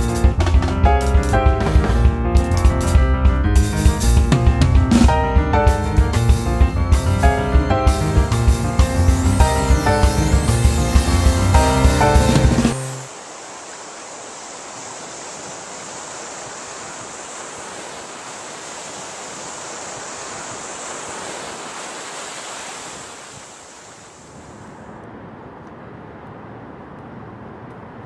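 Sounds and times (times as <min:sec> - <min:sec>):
ocean surf on sandy beach: 0:07.2 - 0:28.0.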